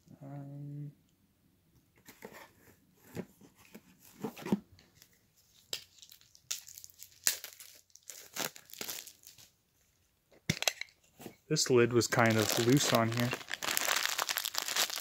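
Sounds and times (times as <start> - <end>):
plastic packaging crinkling: 5.8 - 9.5, 12.0 - 15.0.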